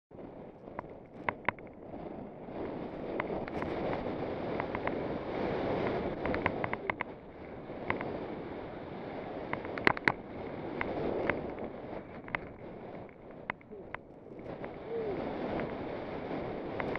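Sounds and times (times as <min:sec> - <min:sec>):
wind rushing over camera: 0:00.1 - 0:16.9
sharp clicks and ticks: 0:00.5 - 0:01.9, 0:02.6 - 0:08.2, 0:09.4 - 0:16.0, 0:16.6 - 0:16.9
snowboard sliding through snow: 0:01.8 - 0:16.9.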